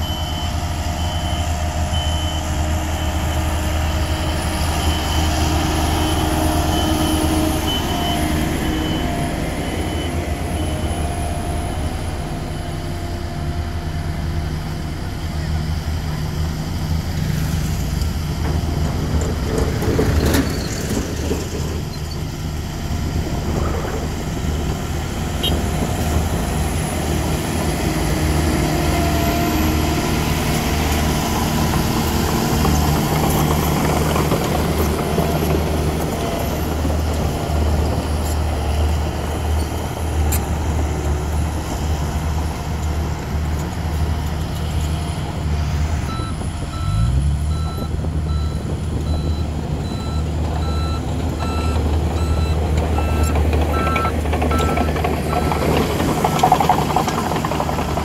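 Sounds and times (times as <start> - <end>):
reversing alarm beeping: 0.0 - 11.0, 46.1 - 56.5
heavy diesel engines running: 0.0 - 58.0.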